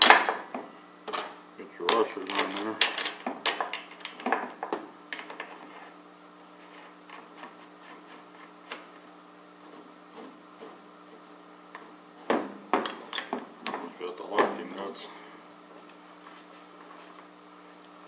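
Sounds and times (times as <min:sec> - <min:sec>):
metal washers clicking: 0:01.9 - 0:03.8.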